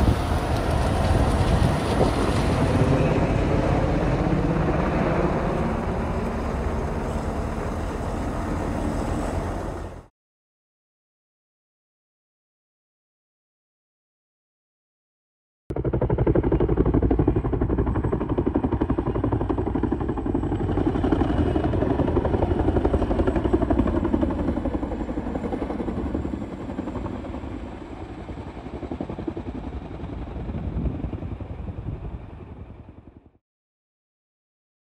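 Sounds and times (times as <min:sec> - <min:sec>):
helicopter rotor chopping: 0:00.0 - 0:10.1, 0:15.7 - 0:33.2.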